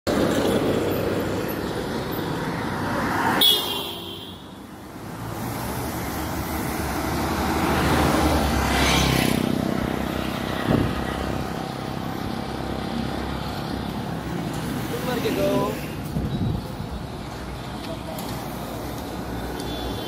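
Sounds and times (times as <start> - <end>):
road traffic passing: 0.1 - 20.0
car horn toot: 3.4 - 4.5.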